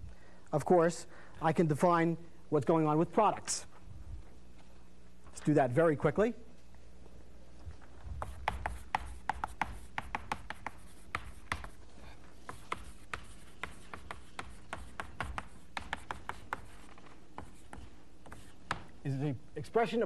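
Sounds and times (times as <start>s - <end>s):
chalk tapping and scratching: 8.2s - 19.0s.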